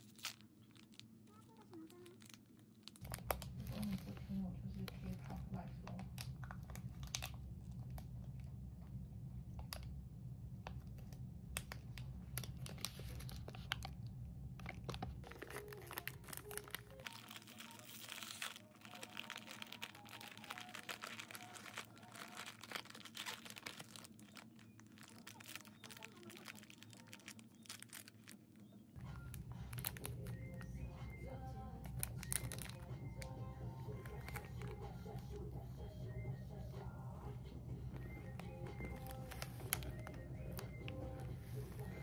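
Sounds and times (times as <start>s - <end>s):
plastic wrappers crinkling: 0.0s - 8.0s, 10.8s - 14.0s, 14.6s - 31.2s, 31.8s - 35.4s, 38.0s - 42.0s
low hum: 2.2s - 42.0s.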